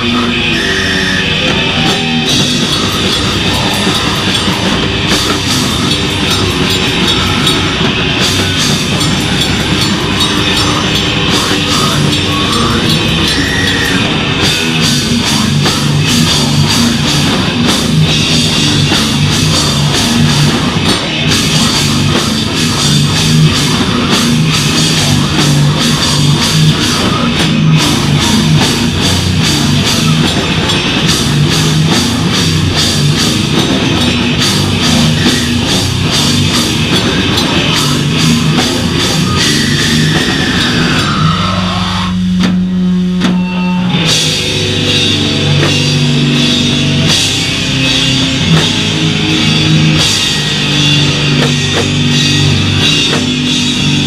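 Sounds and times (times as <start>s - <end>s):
distorted guitars and bass: 0.0s - 54.0s
drum kit pounding: 0.0s - 54.0s
hardcore band playing loud: 0.0s - 54.0s.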